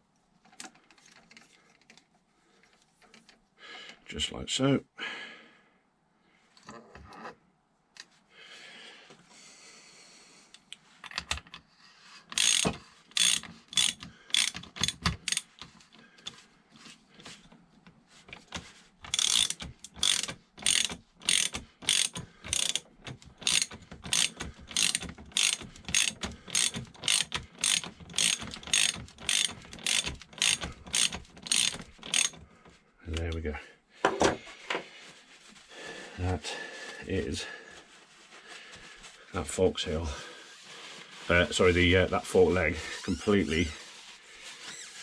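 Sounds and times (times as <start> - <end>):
socket ratchet clicking: 12.3 - 15.8, 18.3 - 32.4
faint rustling: 32.4 - 45.0.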